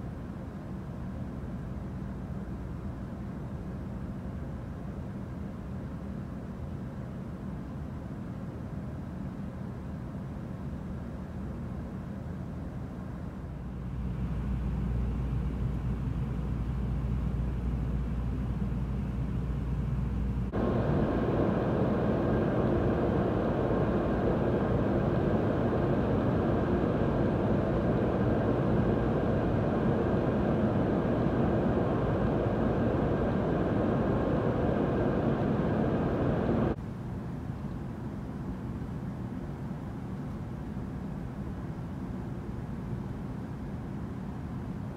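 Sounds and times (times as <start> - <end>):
low hum: 13.6 - 36.8
rushing noise: 20.5 - 36.8.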